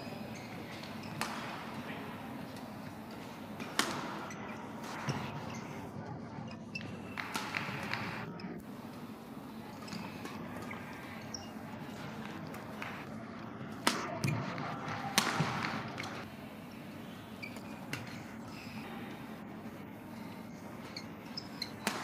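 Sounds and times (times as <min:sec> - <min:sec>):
sports hall background: 0:00.0 - 0:22.0
rackets hitting shuttlecock: 0:00.8 - 0:01.8, 0:02.5 - 0:05.3, 0:06.8 - 0:08.2, 0:13.8 - 0:16.2, 0:21.5 - 0:22.0.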